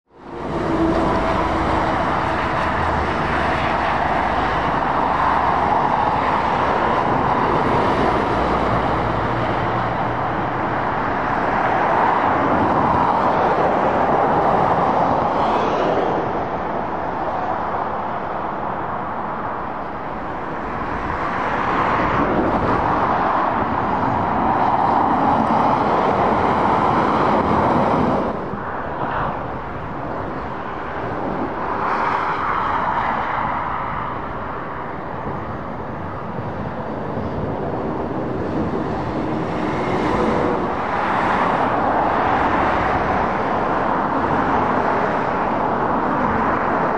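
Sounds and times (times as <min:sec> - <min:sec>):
traffic passing: 0:00.1 - 0:46.9.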